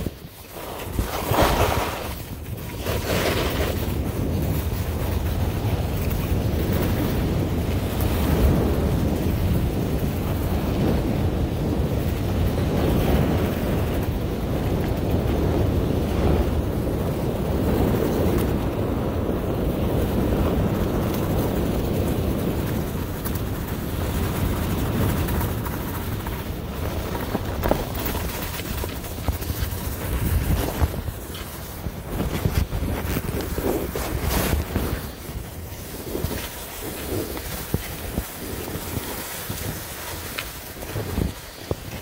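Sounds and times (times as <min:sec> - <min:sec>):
skis sliding over packed snow: 0:00.0 - 0:42.0
wind rushing over microphone: 0:00.0 - 0:42.0.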